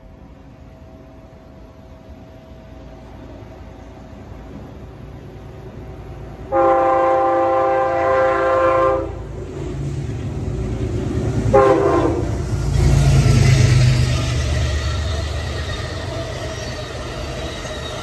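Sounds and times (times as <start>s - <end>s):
diesel train rumbling past: 0.0s - 18.0s
train horn blasts: 6.5s - 9.3s, 11.5s - 12.4s.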